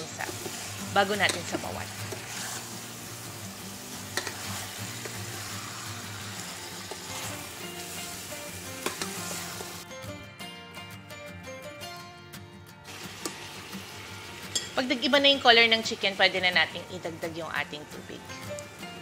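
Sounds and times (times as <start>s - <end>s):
chicken sizzling in hot oil: 0.0s - 9.8s, 12.9s - 17.3s.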